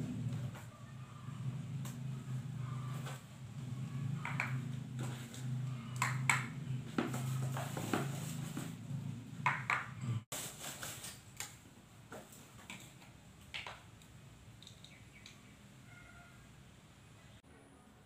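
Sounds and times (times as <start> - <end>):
plastic jars clicking and knocking: 4.2 - 5.2, 5.9 - 7.1, 9.4 - 10.0.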